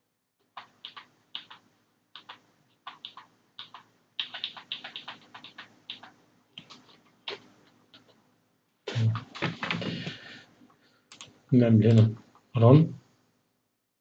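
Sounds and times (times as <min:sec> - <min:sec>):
keyboard typing: 0:00.4 - 0:08.2, 0:11.1 - 0:11.3.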